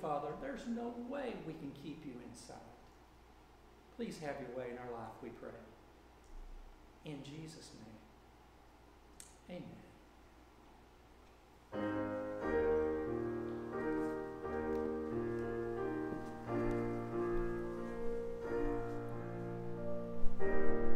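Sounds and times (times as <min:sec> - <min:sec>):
keyboard playing slow chords: 0:11.7 - 0:20.9.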